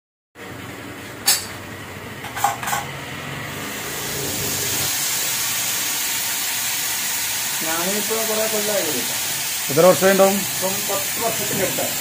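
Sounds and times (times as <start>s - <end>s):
metal cookware clanking: 2.2s - 3.0s
frying sizzle: 2.2s - 12.0s.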